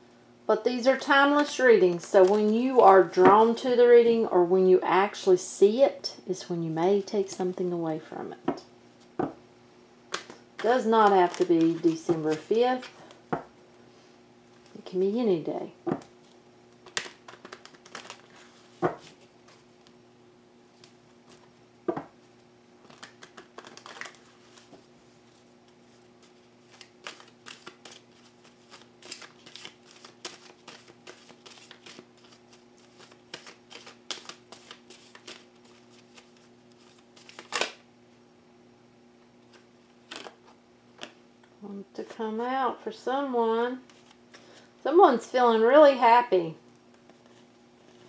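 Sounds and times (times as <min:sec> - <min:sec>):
cards being shuffled: 0:01.9 - 0:03.0, 0:10.1 - 0:13.2, 0:15.9 - 0:20.0, 0:22.8 - 0:37.8, 0:39.5 - 0:41.2
card deck snaps: 0:37.2 - 0:37.8.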